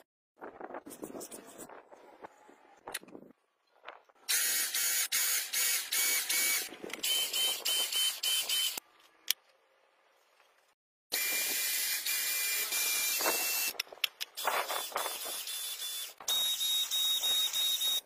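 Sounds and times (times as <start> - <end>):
electric pump whirring: 4.3 - 8.8, 11.1 - 18.0.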